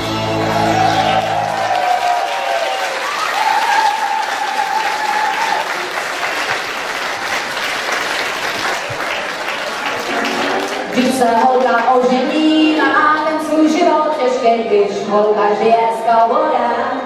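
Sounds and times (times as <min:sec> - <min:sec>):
audience applauding: 0:00.1 - 0:13.0.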